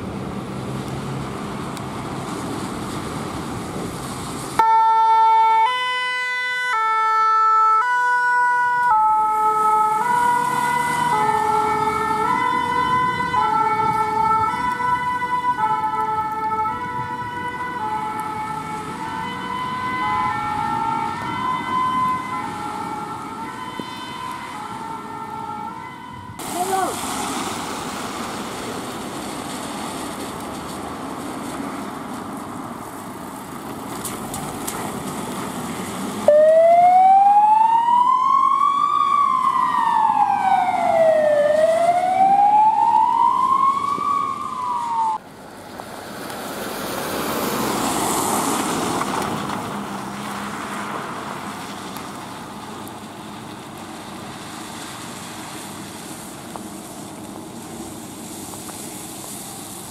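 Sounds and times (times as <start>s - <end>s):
tyres hissing on wet road: 0.0s - 59.9s
emergency siren wailing: 4.6s - 27.0s, 36.1s - 45.2s
vehicle passing: 5.4s - 57.6s.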